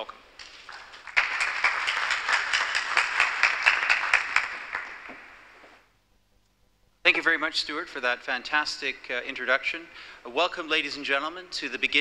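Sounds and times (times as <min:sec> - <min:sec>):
audience applauding: 0:00.4 - 0:05.5.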